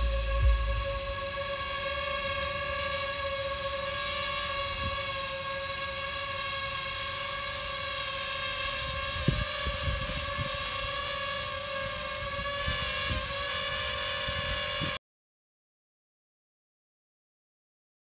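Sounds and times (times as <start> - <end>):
brief thump: 0.0 - 1.2
low gusty rumbles: 0.0 - 1.2
drone propellers whining: 0.0 - 15.0.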